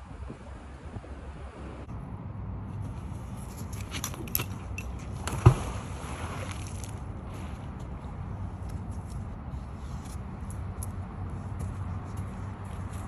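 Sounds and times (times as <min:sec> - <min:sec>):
low wind rumble on microphone: 0:00.0 - 0:13.0
rope clicks and rustles: 0:02.8 - 0:13.0.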